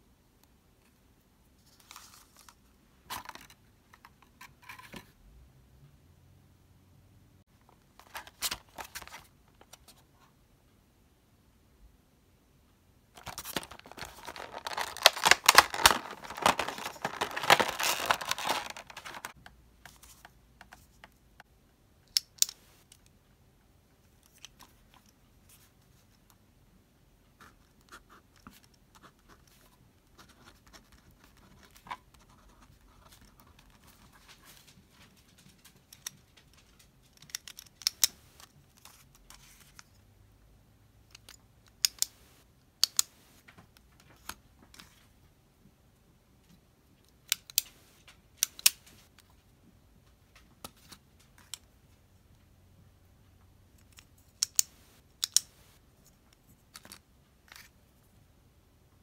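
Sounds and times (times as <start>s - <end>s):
packaging crinkling and tearing: 13.2s - 19.4s.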